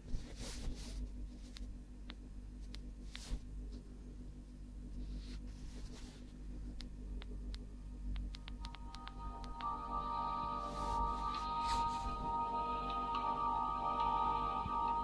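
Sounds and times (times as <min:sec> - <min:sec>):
low steady hum: 0:07.9 - 0:15.0.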